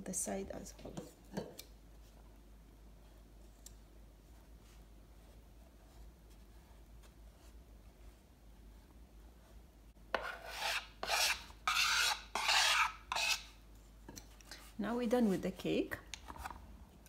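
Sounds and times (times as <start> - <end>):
spatula scraping buttercream: 10.1 - 13.6.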